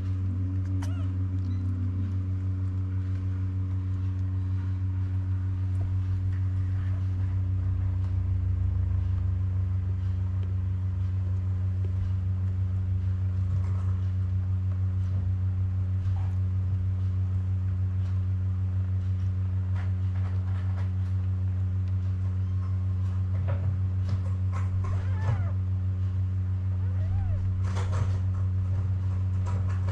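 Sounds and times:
low pulsing hum: 0.0s - 29.9s
faint squeak: 0.6s - 2.0s, 24.8s - 25.6s, 26.8s - 28.2s.

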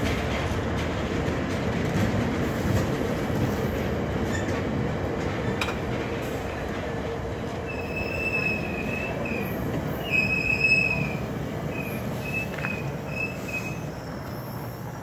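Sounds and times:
train cars rolling on rails: 0.0s - 15.0s
high-pitched wheel squeal: 7.7s - 14.8s.

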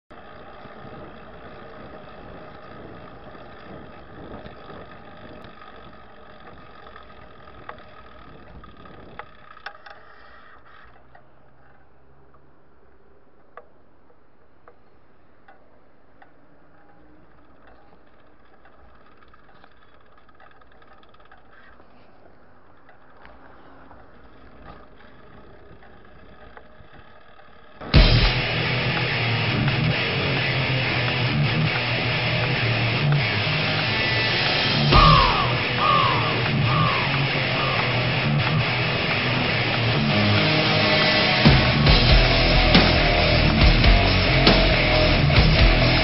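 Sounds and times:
car engines running: 0.1s - 9.8s, 16.7s - 46.0s
road noise hum: 0.1s - 46.0s
sharp clicks: 22.6s - 46.0s.

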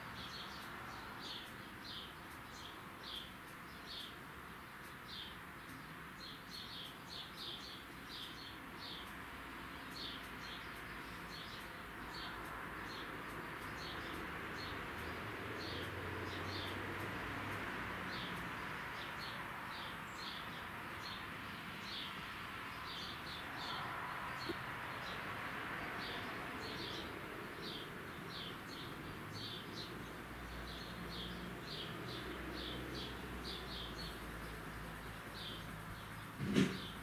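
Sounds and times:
small bird chirping: 0.0s - 37.0s.

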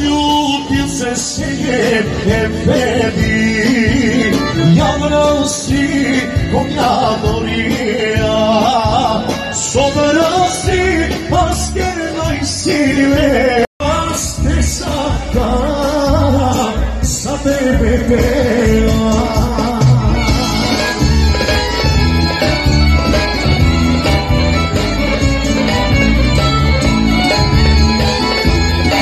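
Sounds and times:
live band with male singer: 0.0s - 29.0s.

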